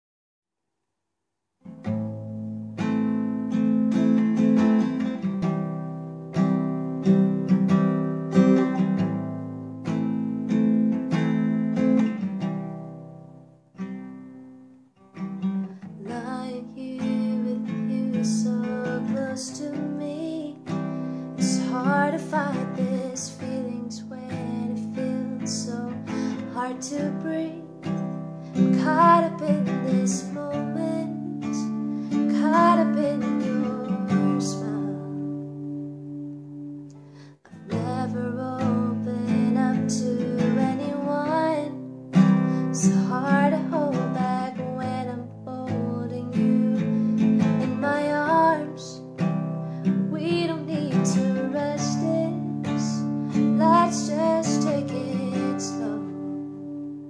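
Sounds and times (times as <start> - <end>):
acoustic guitar chords: 1.6 - 57.0
soft voice singing: 16.0 - 20.7, 28.7 - 31.7, 32.3 - 35.4, 37.5 - 41.8, 42.8 - 49.0, 50.1 - 56.2.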